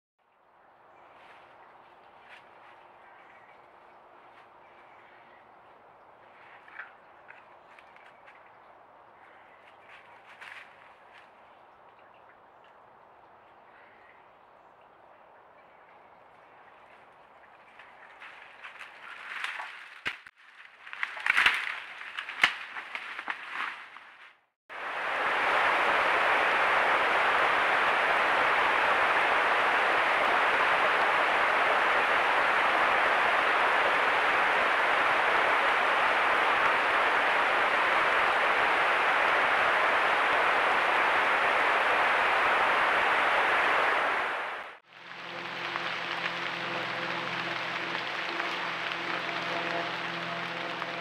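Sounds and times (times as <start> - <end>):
bear walking over dry leaves: 9.6 - 11.6, 16.8 - 24.4
creek water rushing: 24.7 - 51.0.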